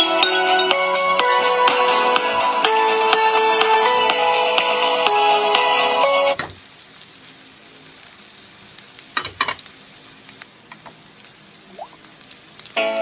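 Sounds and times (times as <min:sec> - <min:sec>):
onions sizzling in hot oil: 0:06.2 - 0:13.0.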